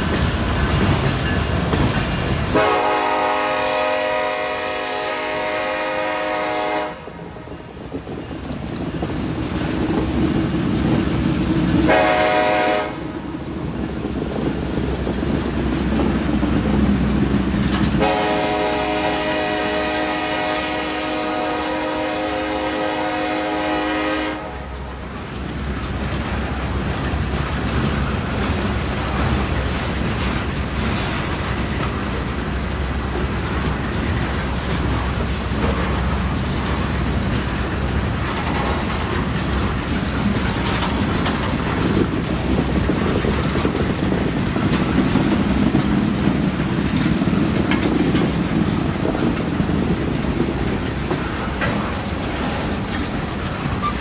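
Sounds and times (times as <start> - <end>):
freight train rumbling and clattering: 0.0 - 54.0
locomotive air horn blasts: 2.5 - 7.2, 11.9 - 13.0, 18.0 - 24.8.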